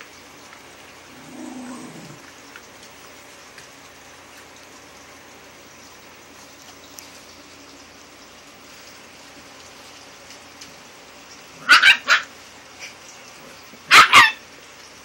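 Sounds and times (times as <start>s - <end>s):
puppy yapping: 11.6s - 12.3s, 13.9s - 14.4s.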